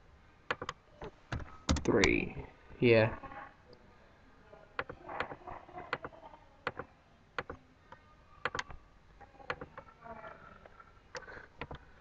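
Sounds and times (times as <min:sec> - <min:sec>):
computer mouse clicking: 0:00.5 - 0:00.8, 0:04.8 - 0:06.1, 0:06.7 - 0:07.6, 0:08.4 - 0:08.8, 0:09.5 - 0:09.8, 0:11.1 - 0:11.8.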